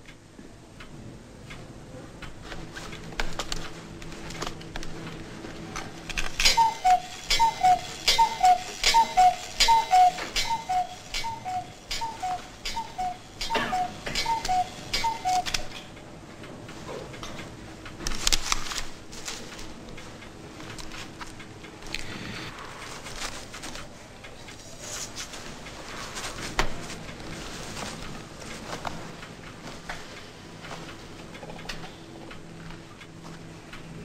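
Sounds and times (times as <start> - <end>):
sharp clicks: 5.8 - 16.1
clock ticking: 6.1 - 22.1.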